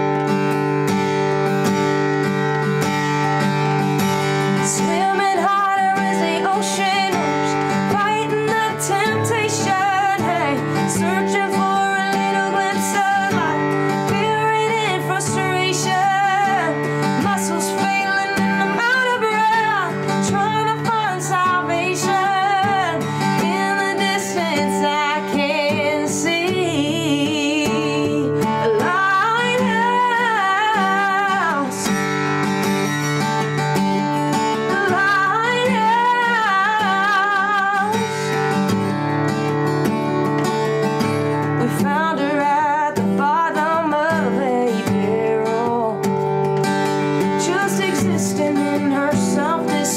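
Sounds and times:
acoustic guitar: 0.0s - 49.9s
woman singing with vibrato: 4.5s - 32.1s, 34.3s - 38.6s, 41.5s - 46.1s, 47.2s - 49.9s.

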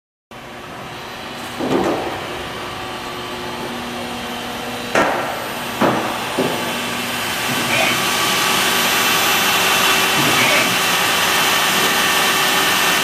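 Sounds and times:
machine shop hum: 0.3s - 13.0s
sharp knocks: 4.9s - 6.7s.

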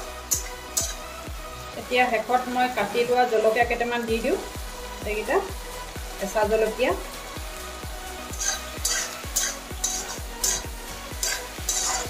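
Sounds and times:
meat sizzling in oil: 0.0s - 12.0s
wooden spatula scraping a pan: 8.3s - 12.0s.

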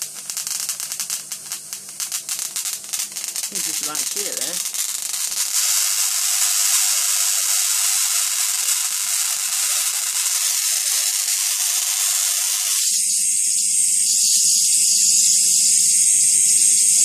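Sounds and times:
high-voltage arcs hissing: 0.0s - 17.0s.

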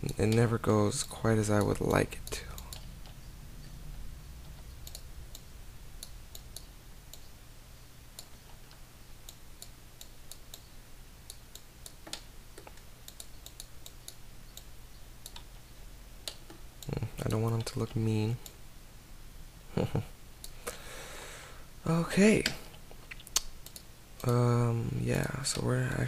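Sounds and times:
faint low hum: 0.0s - 26.0s
computer mouse and keyboard clicks: 11.3s - 15.5s, 22.4s - 24.4s.

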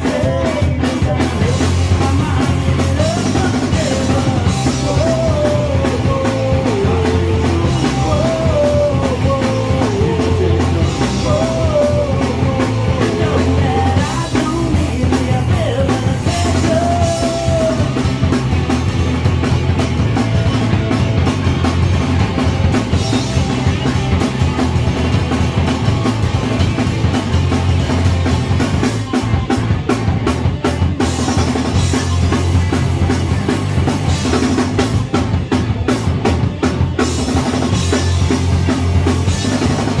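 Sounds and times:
person singing: 0.0s - 18.2s
punk rock band playing: 0.0s - 40.0s.

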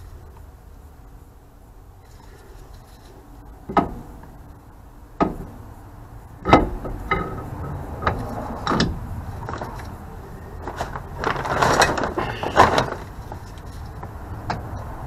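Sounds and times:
sharp metal clunks: 3.6s - 4.4s, 5.2s - 5.6s, 6.4s - 9.0s.

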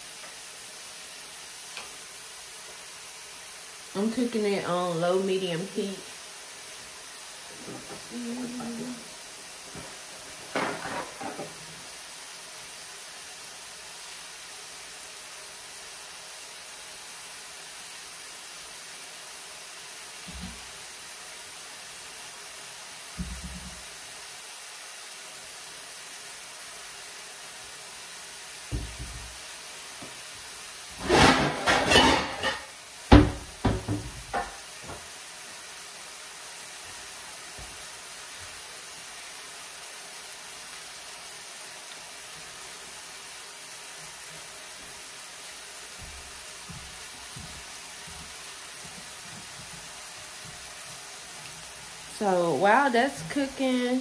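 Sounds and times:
meat patties sizzling in oil: 0.0s - 54.0s
kitchen clatter: 7.5s - 8.9s, 9.7s - 11.7s, 31.0s - 35.0s.

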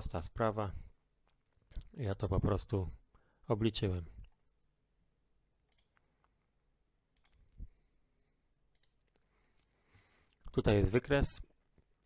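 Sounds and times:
computer mouse clicks: 5.6s - 6.4s, 7.1s - 7.6s, 8.7s - 9.7s.

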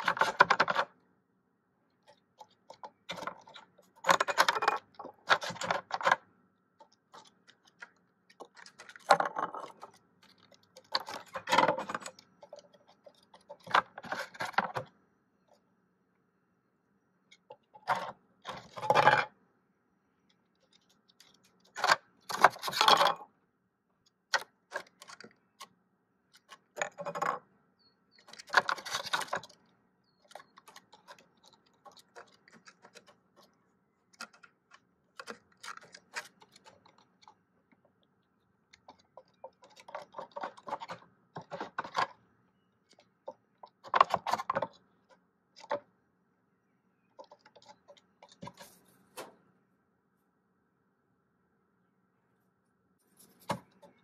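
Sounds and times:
plastic and wood clattering: 0.0s - 0.9s, 2.1s - 6.2s, 6.8s - 14.9s, 26.4s - 27.4s, 28.2s - 29.6s, 38.8s - 42.2s, 42.9s - 44.8s, 53.2s - 54.0s.

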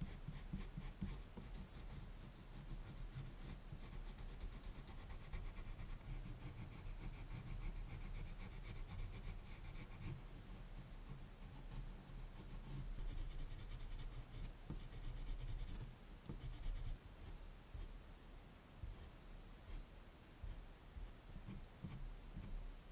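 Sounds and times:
colored pencil scratching on paper: 0.0s - 18.0s, 20.4s - 22.6s.

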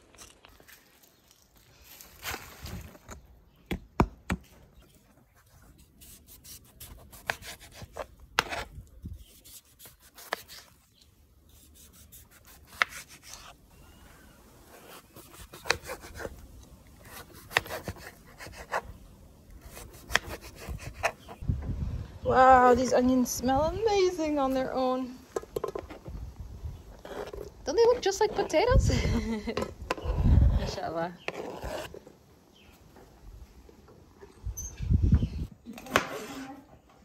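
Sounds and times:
knife scraping: 5.7s - 10.8s, 11.5s - 13.6s, 29.9s - 32.0s.

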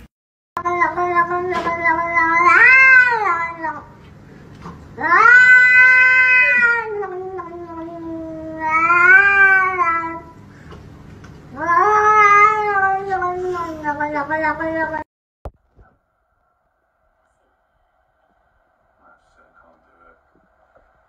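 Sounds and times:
cat yowling: 0.6s - 3.9s, 5.0s - 10.4s, 11.5s - 15.0s.

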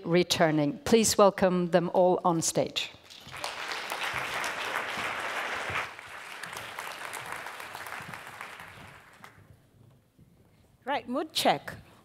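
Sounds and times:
audience applauding: 3.1s - 9.4s.

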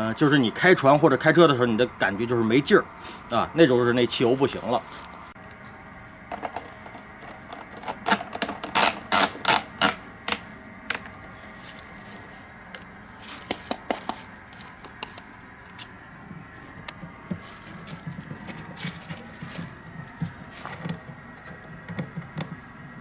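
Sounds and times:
rustles: 6.5s - 21.6s.

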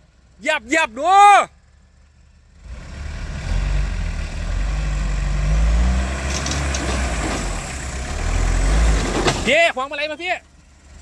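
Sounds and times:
engine revving hard: 2.6s - 9.3s.

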